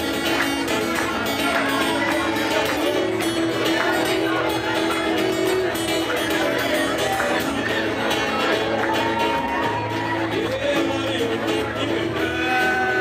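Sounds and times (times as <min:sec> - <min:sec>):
acoustic guitars playing: 0:00.0 - 0:13.0.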